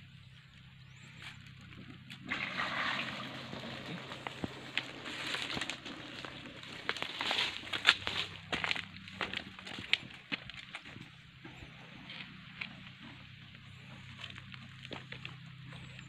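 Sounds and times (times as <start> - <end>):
shallow water sloshing: 2.2 - 7.3
dry palm fronds crackling: 3.2 - 10.8.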